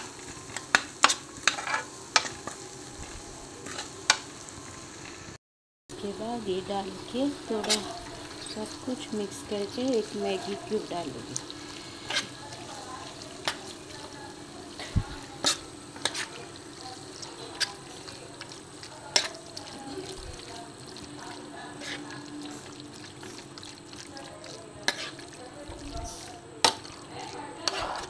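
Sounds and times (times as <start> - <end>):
wet squelching: 17.6 - 28.0.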